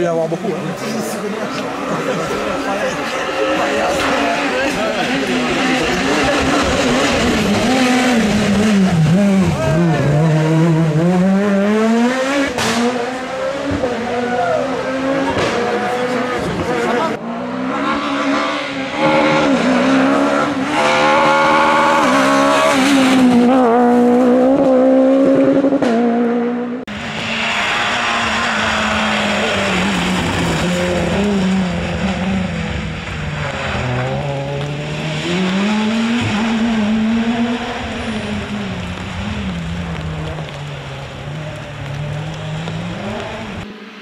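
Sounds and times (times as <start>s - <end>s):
rally car engines revving: 0.0s - 44.0s
rally car accelerating past: 1.8s - 40.6s.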